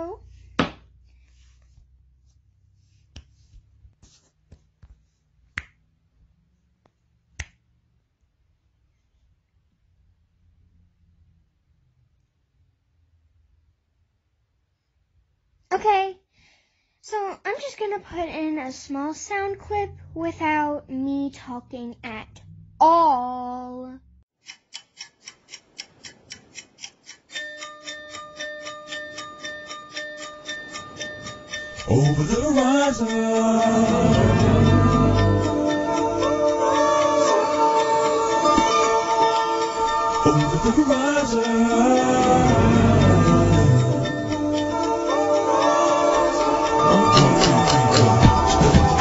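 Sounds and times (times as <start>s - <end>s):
clock-like ticking: 24.4s - 49.0s.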